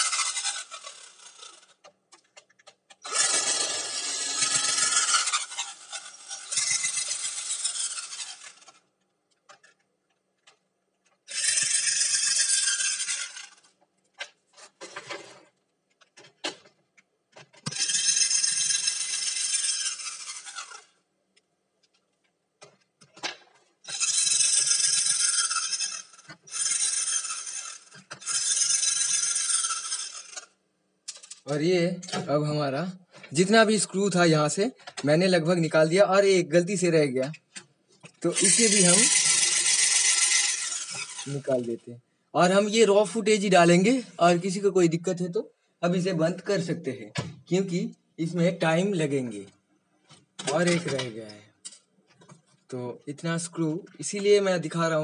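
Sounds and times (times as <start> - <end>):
cordless drill running: 0.0 - 1.8, 2.9 - 8.8, 11.3 - 13.7, 17.6 - 21.0, 23.9 - 31.4, 38.2 - 41.7.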